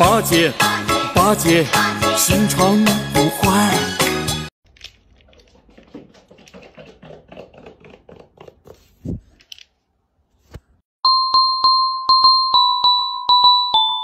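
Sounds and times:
bell-like music: 11.1 - 14.0.

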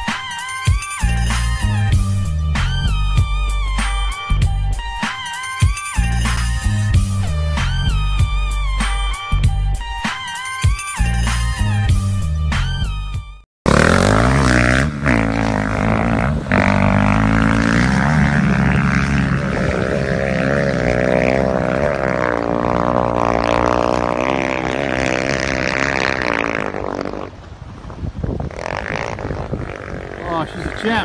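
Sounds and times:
boat engine at high revs: 13.6 - 27.6, 28.4 - 31.0.

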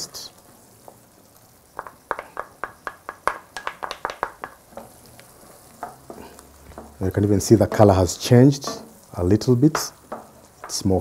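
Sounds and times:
wooden spatula tapping container: 1.7 - 9.0, 9.6 - 10.9.

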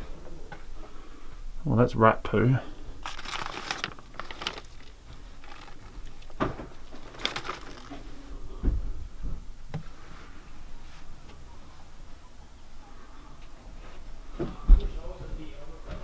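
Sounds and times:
rustling: 2.9 - 8.5.

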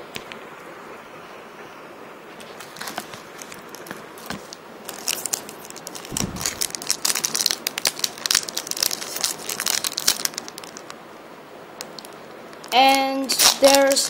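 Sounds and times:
wrapper tearing and crinkling: 4.9 - 10.9
soft thump: 6.1 - 6.9.

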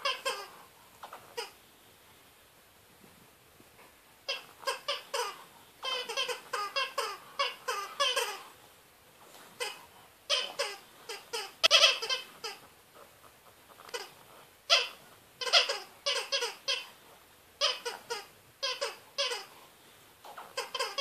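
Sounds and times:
rubber dog toy squeaking: 0.0 - 1.6, 4.2 - 8.6, 9.6 - 12.7, 13.8 - 17.0, 17.6 - 19.6, 20.2 - 21.0.

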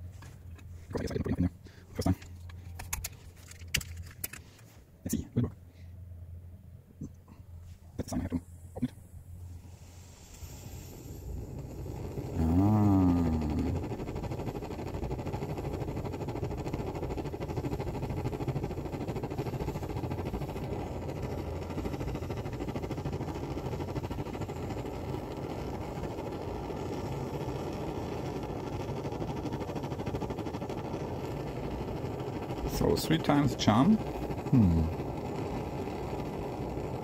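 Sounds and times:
camping stove burner rushing: 9.6 - 37.0.

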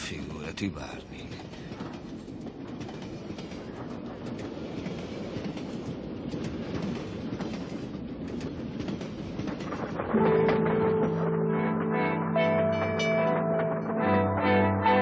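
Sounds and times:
train wheels rumbling: 0.0 - 11.0.

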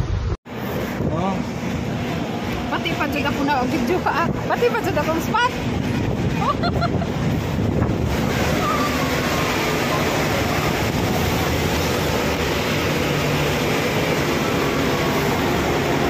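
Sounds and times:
bus engine and road rumble: 0.0 - 16.0.

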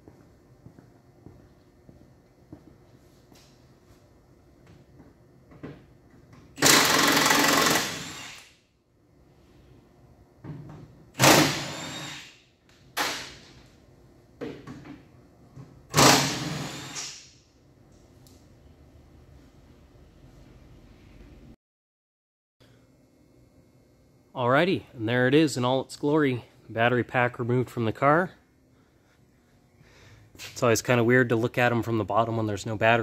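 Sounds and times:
impact wrench running: 6.5 - 8.6, 11.1 - 12.4, 15.9 - 17.4.

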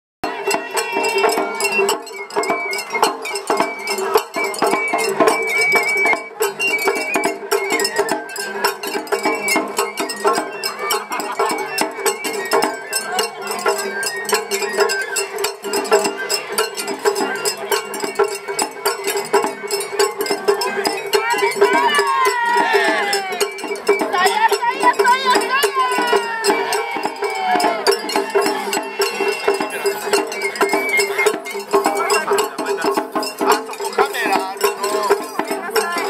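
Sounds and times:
bamboo flute melody: 0.2 - 36.0
drum and gong strikes: 15.3 - 36.0.

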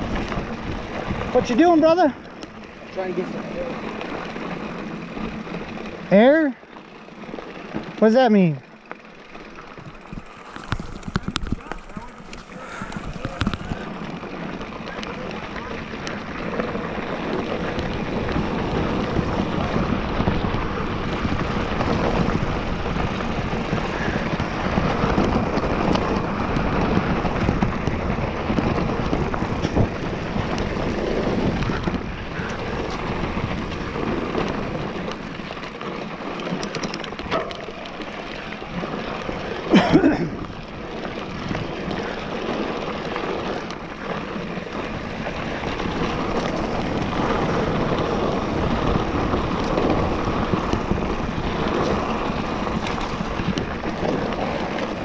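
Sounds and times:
wind on microphone: 0.0 - 1.6, 9.6 - 35.5, 40.1 - 55.0
tyres rolling over dirt: 0.0 - 55.0.

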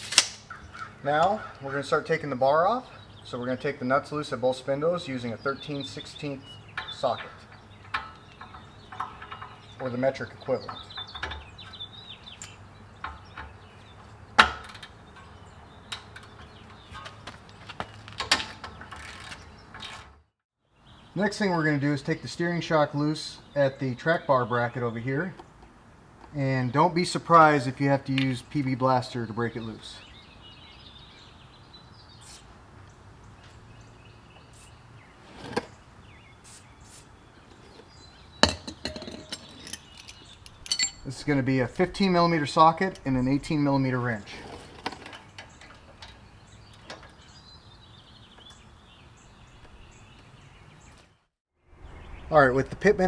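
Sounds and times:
sharp crack: 0.0 - 0.5
metal knocks: 6.7 - 11.8, 38.4 - 41.2
metallic clink of hand tools: 38.4 - 41.2.

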